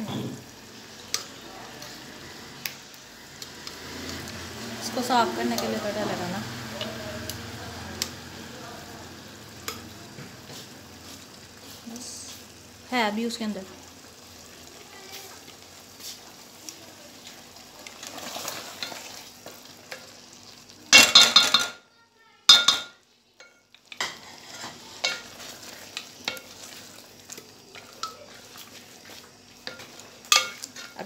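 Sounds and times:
low sizzle of frying: 0.0s - 31.0s
spatula scraping in pot: 23.4s - 31.0s.

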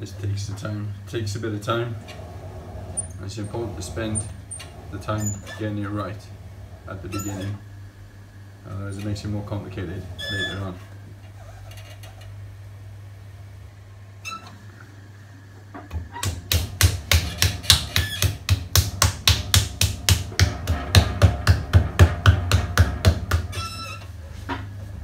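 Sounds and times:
low steady hum: 0.0s - 25.0s
hand slapping clay: 16.2s - 23.5s.

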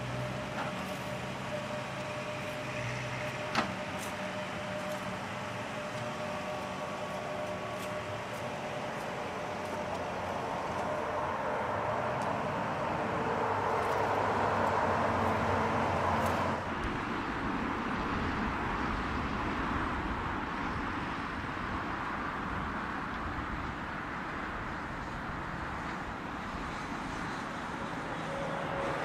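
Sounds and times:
turbofan hum: 0.0s - 21.8s
jet engine noise: 0.0s - 29.0s.

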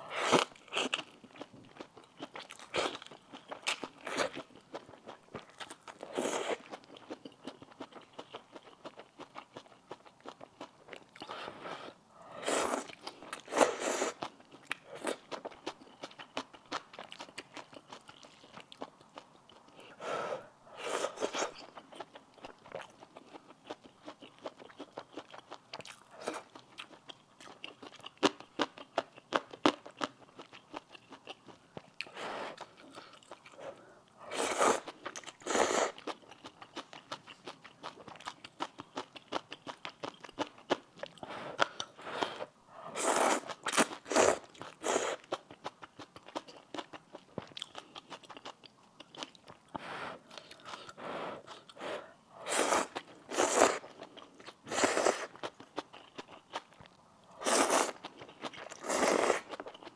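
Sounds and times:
slurping noodles: 11.2s - 14.2s, 34.2s - 36.0s, 41.4s - 45.2s, 49.8s - 53.9s, 54.7s - 55.4s, 57.4s - 58.0s, 58.8s - 59.6s
wet chewing: 21.1s - 59.9s.

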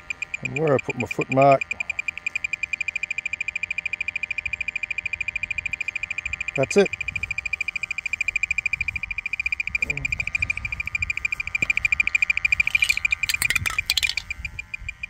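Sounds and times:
rapid high beeps: 0.0s - 15.0s
sharp clicks: 12.0s - 14.4s.

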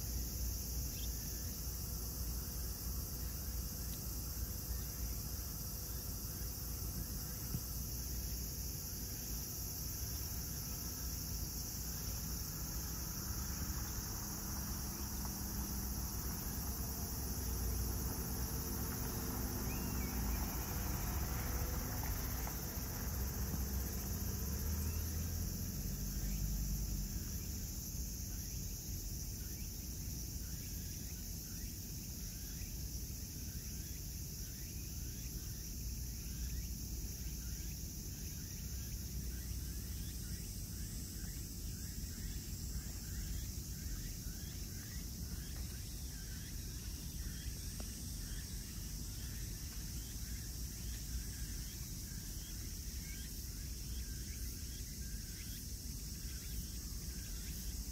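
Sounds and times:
insect chorus: 0.0s - 57.9s.

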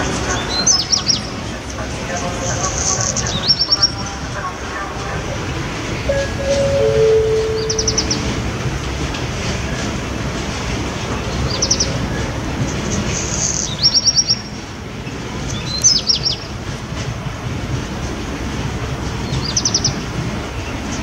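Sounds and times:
small songbird singing: 6.1s - 8.3s.

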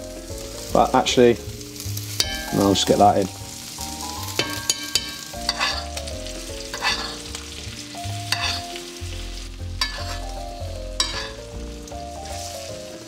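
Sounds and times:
scallops sizzling in butter: 0.0s - 13.0s
utensil scraping in pan: 2.1s - 11.5s, 12.1s - 13.0s.

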